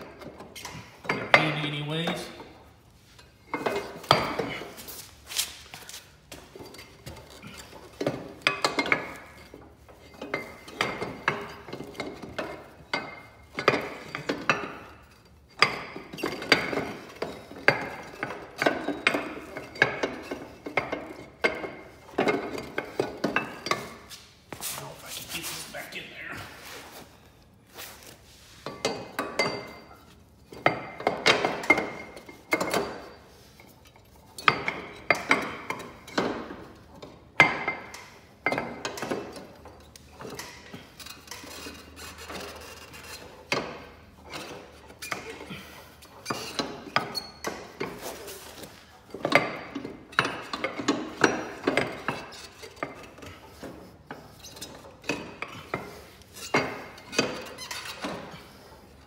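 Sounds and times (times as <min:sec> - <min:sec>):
metal clanks and rattles: 0:00.0 - 0:24.6, 0:28.6 - 0:59.0.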